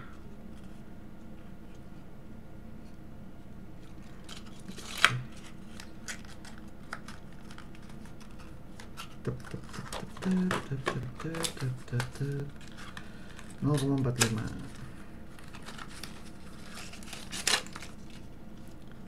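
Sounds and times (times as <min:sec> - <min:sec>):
packaging clicking and crinkling: 0:03.8 - 0:14.8, 0:15.4 - 0:19.0.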